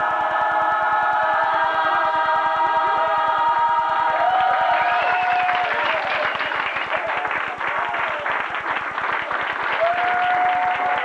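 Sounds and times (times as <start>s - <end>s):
congregation applauding: 2.8s - 11.0s.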